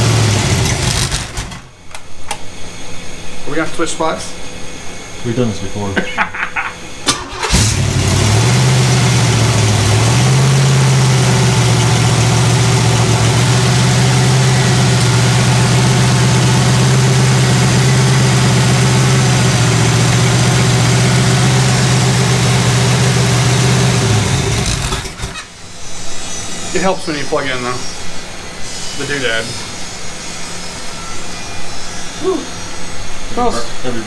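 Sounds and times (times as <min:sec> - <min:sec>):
engine running at fast idle: 0:00.0 - 0:01.7, 0:07.1 - 0:25.5.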